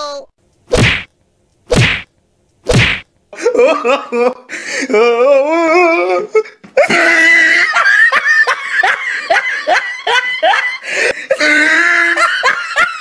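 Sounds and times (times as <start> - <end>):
held laugh or cry: 3.4 - 13.0
person laughing hard: 6.8 - 13.0.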